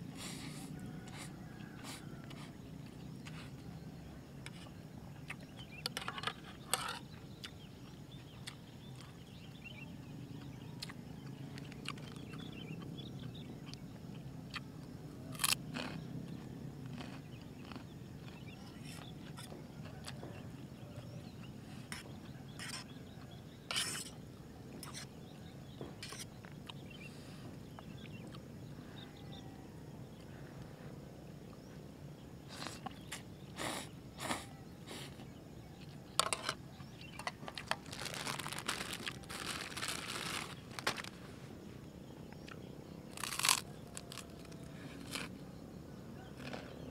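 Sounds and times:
low background noise: 0.0 - 46.9
person chewing: 15.3 - 19.5, 43.2 - 45.3.

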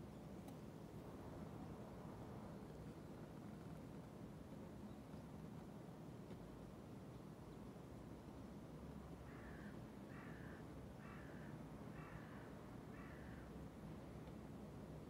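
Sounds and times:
crow cawing: 9.2 - 13.5.

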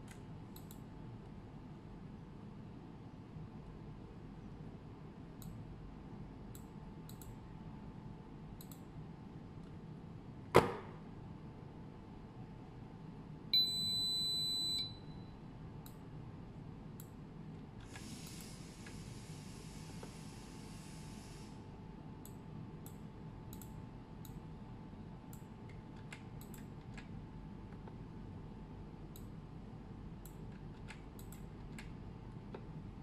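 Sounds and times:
high-pitched motor beep: 13.6 - 15.3.

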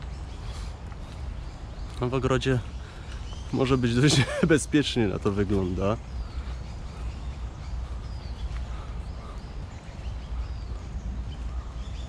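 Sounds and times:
faint bird chirps: 0.0 - 12.0
footsteps on stone path: 0.0 - 12.0
low rumble on microphone: 6.0 - 12.0.

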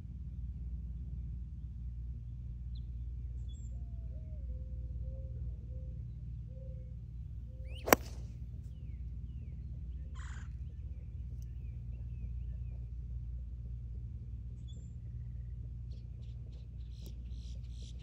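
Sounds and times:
golf club striking ball: 7.8 - 8.3.

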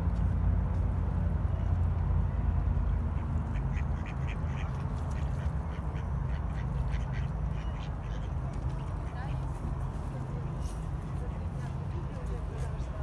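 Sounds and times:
ducks quacking: 3.1 - 9.3.

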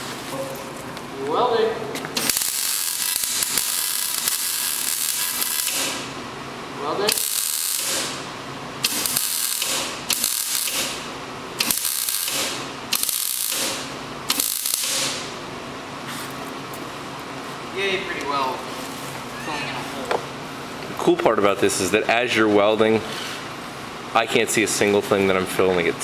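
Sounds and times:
welder arc crackling: 2.2 - 6.2, 7.1 - 15.4
sharp snap of arc striking: 7.1 - 8.2, 8.8 - 11.0, 11.6 - 15.3.

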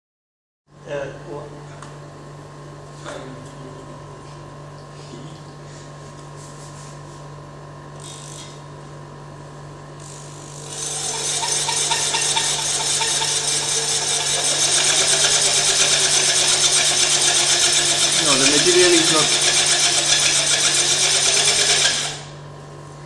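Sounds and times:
electric drill running: 8.0 - 8.6, 10.0 - 22.4
auger churning sand: 11.0 - 22.0.

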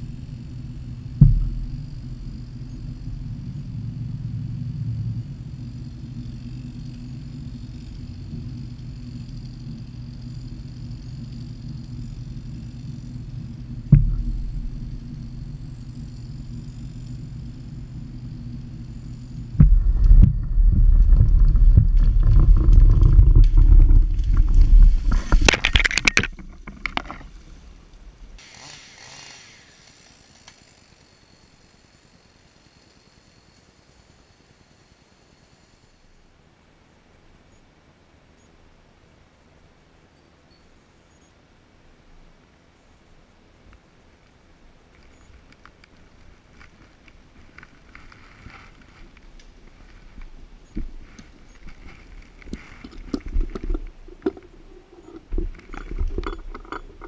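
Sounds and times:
falling tree rumbling and cracking: 0.0 - 28.4, 45.9 - 57.0
winch low hum: 0.0 - 28.4, 48.0 - 57.0
thump: 1.2 - 2.2, 13.9 - 15.5, 19.6 - 23.9.

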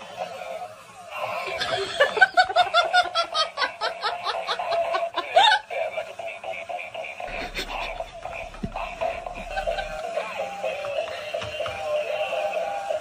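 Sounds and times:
person laughing hard: 1.4 - 10.3.

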